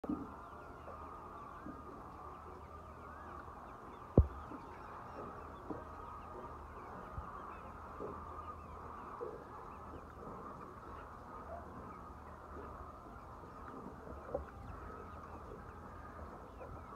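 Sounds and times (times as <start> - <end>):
chickens clucking: 0.1 - 16.9
loud thump: 4.2 - 4.4
faint knocks: 4.2 - 6.5.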